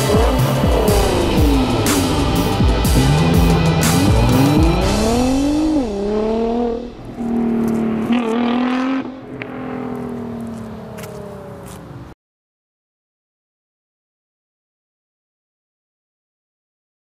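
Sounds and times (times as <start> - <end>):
background music with beat: 0.0 - 8.4
car engine accelerating hard: 0.0 - 12.1.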